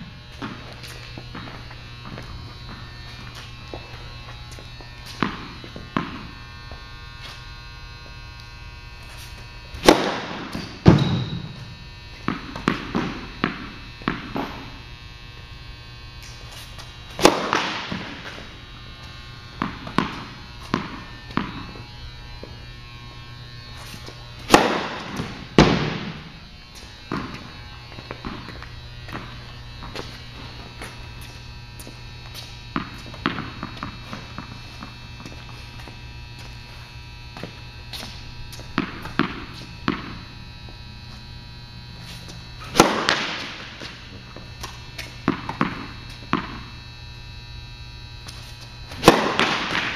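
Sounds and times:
racket striking ball: 0.0 - 3.5, 5.0 - 6.4, 9.8 - 14.8, 17.1 - 18.5, 19.6 - 21.8, 23.9 - 30.2, 32.3 - 35.3, 38.0 - 40.3, 42.1 - 46.7, 48.9 - 49.9
steady electrical hum: 0.0 - 49.9
tennis ball bouncing on hard court: 0.3 - 3.8, 5.0 - 6.3, 9.8 - 14.7, 17.2 - 18.4, 19.6 - 21.8, 24.0 - 26.3, 27.1 - 30.2, 30.8 - 36.0, 37.4 - 40.3, 42.7 - 44.0, 44.6 - 46.7, 49.0 - 49.9.

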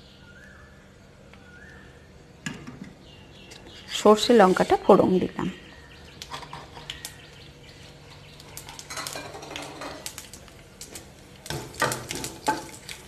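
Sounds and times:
faint oil sizzle: 3.7 - 13.0
seeds popping in hot oil: 5.6 - 13.0.

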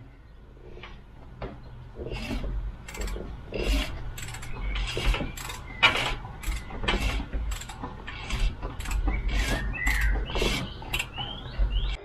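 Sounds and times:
socket ratchet clicking: 4.2 - 4.5.

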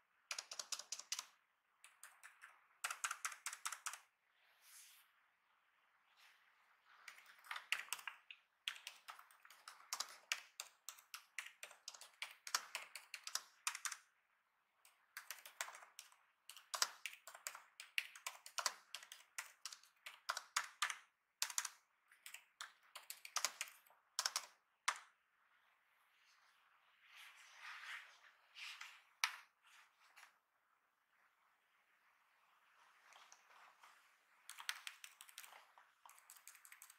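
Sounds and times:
laptop keyboard typing: 0.3 - 4.1, 7.1 - 14.1, 14.8 - 25.1, 34.5 - 36.9.

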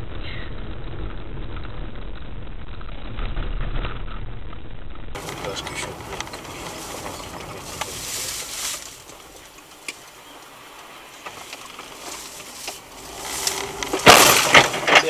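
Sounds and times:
vehicle collision crash: 5.2 - 15.0.

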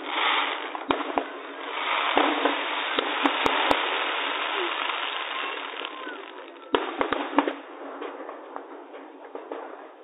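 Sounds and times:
fireworks hiss: 0.0 - 7.7
fireworks bangs: 0.0 - 10.0.

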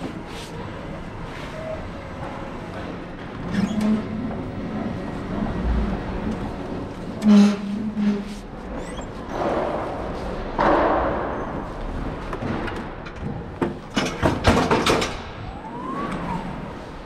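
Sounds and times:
electric pallet truck driving: 0.0 - 10.6, 13.7 - 17.0
rising whine: 15.2 - 17.0.

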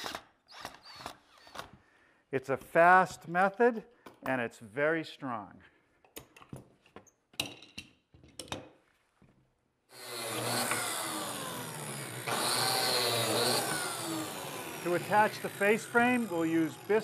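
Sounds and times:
biscuit joiner cutting wood: 9.9 - 17.0.

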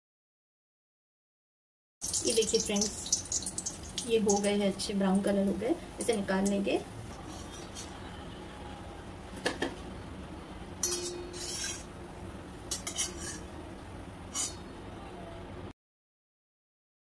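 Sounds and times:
faint steady background noise: 2.0 - 15.7
metal spatula scraping a pan: 7.1 - 8.1, 10.8 - 12.0, 12.7 - 13.6, 14.3 - 14.7.

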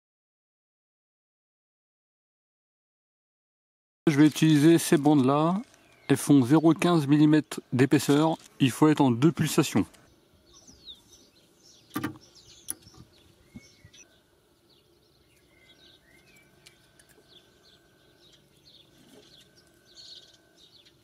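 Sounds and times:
birds chirping: 4.1 - 21.0.

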